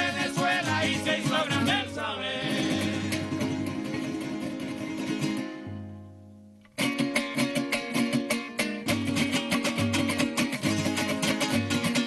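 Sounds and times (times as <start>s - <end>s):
men singing: 0.0s - 3.6s
strummed guitars: 0.0s - 12.0s.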